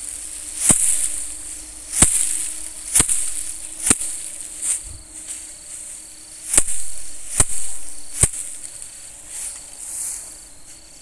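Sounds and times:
paddy sheaves thwacking: 0.0 - 4.9, 6.5 - 8.8
swish of straw: 0.0 - 10.4
insects chirping: 0.0 - 11.0.

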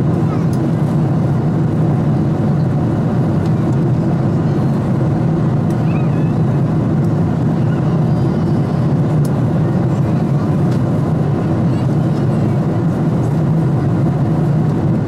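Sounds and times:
airplane cabin engine rumble: 0.0 - 15.0.

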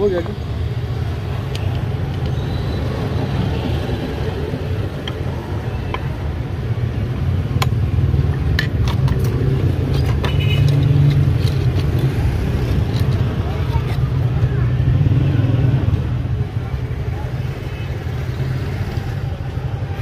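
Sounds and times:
metal tools clicking on padlock: 7.7 - 14.0.

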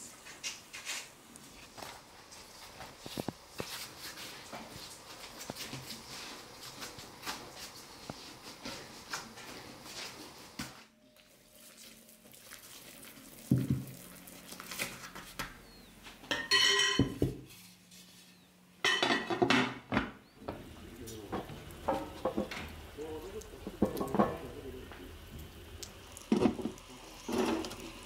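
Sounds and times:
dishes and utensils clattering: 16.3 - 17.4, 18.8 - 23.0, 23.6 - 24.6.

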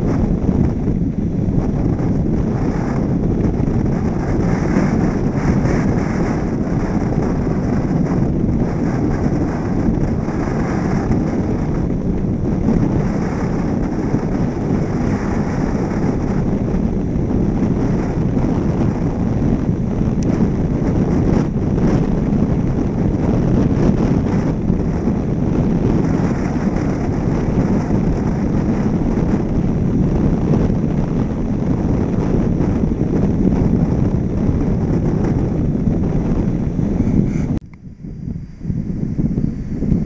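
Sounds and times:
car road and tyre noise: 0.0 - 40.0
wind rush over microphone: 0.0 - 40.0.

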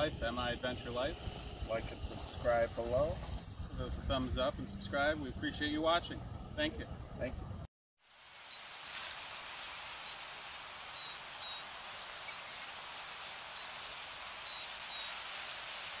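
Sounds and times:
steady hiss: 0.0 - 7.3, 8.0 - 16.0
high bird-like chirps: 9.7 - 10.3, 10.9 - 15.2.

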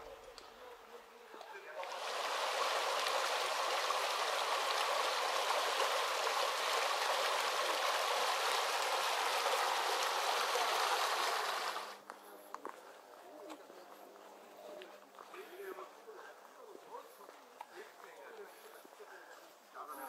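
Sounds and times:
stream water rushing: 1.8 - 12.0.

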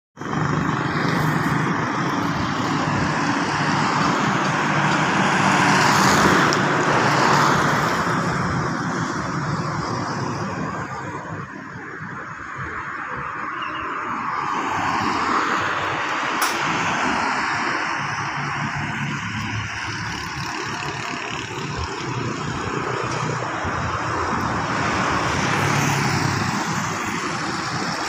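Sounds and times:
vehicle engine hum: 0.2 - 12.4, 14.3 - 28.0
tyre and road noise: 0.2 - 28.0
car passing by: 14.3 - 28.0.

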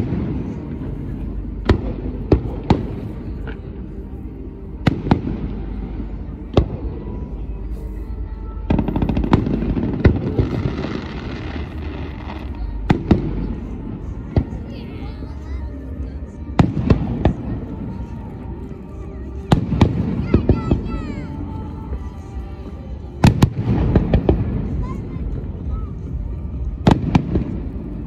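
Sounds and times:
crackling firework stars: 0.0 - 28.0
firework bangs: 26.5 - 28.0.

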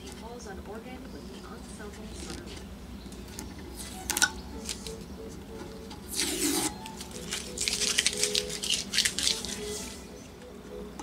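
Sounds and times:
tape peeling with crackle: 3.3 - 5.0, 5.8 - 10.1.

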